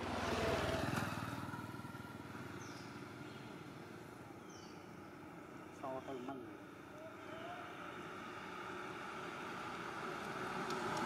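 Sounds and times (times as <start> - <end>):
vehicle engine passing: 0.0 - 4.0, 7.2 - 11.0.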